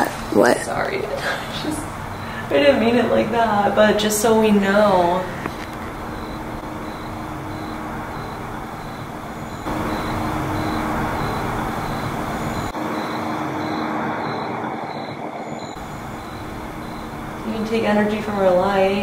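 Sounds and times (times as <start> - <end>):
steady hiss: 4.0 - 14.2, 15.6 - 19.0
high chirping pulse: 4.6 - 19.0.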